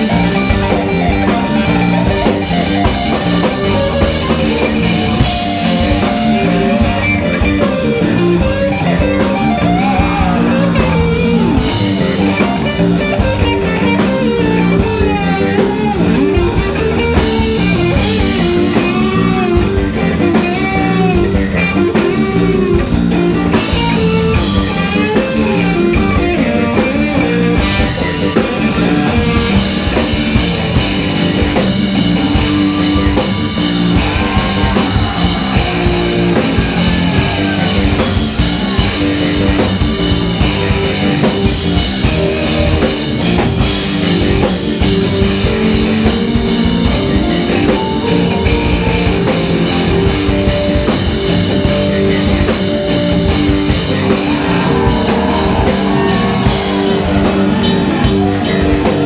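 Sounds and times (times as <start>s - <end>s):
drum kit: 0.0s - 59.0s
electric bass: 0.0s - 59.0s
electric guitar lead: 0.0s - 59.0s.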